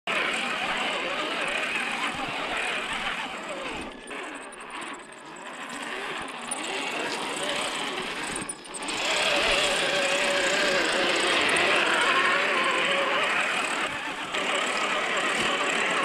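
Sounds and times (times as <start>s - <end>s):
electric motor whining: 0.1s - 16.0s.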